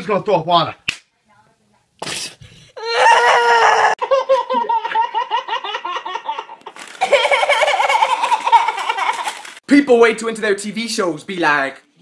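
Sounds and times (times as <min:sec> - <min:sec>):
boy laughing breathlessly: 0:03.8 - 0:09.6
people laughing: 0:04.0 - 0:09.5.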